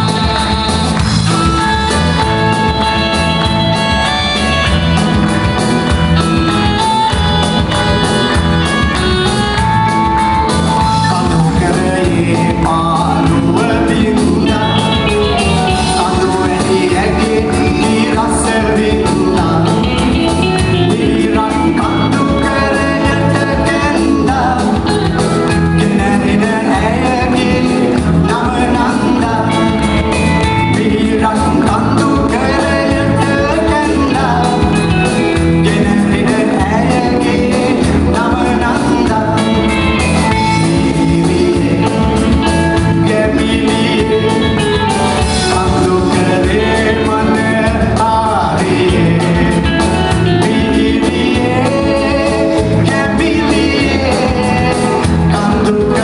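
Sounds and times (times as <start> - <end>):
drums: 0.0 - 56.0
electric guitar: 0.0 - 56.0
man singing into a microphone: 9.9 - 56.0.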